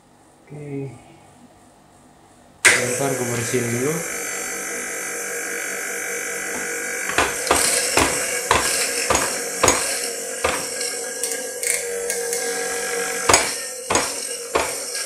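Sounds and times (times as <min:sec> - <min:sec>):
steady hum: 0:00.0 - 0:15.0
coffee grinder being knocked: 0:06.6 - 0:11.4, 0:13.3 - 0:15.0.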